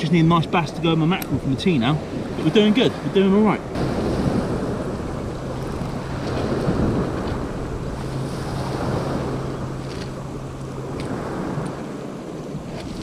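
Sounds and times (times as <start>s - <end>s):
steady low hum: 0.0s - 13.0s
waves on shingle beach: 0.0s - 13.0s
wind buffeting microphone: 0.0s - 13.0s.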